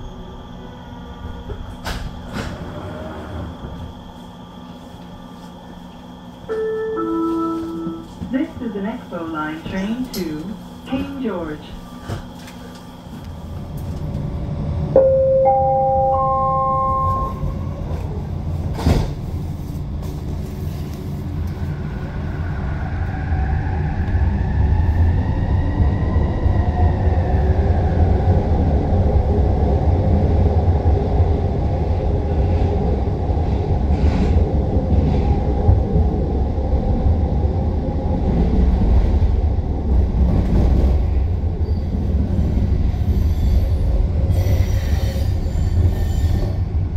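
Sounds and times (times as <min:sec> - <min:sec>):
train wheels rumbling on track: 0:01.2 - 0:05.2, 0:16.8 - 0:46.9
three-note chime: 0:15.0 - 0:17.6.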